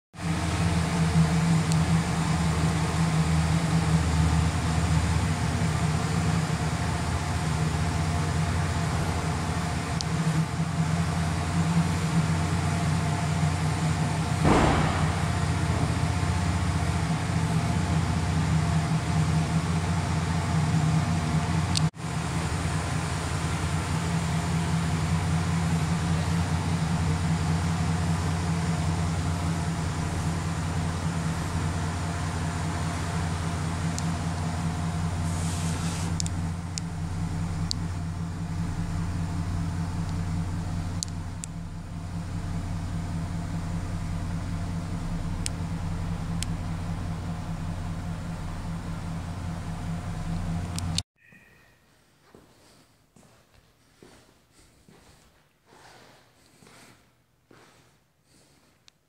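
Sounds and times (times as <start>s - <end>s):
pickup engine idling: 0.2s - 51.0s
brief rushing noise: 14.4s - 15.9s.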